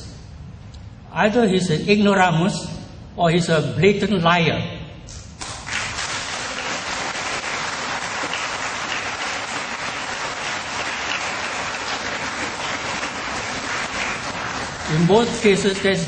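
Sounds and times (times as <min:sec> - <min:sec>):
audience applauding: 0:05.4 - 0:16.0.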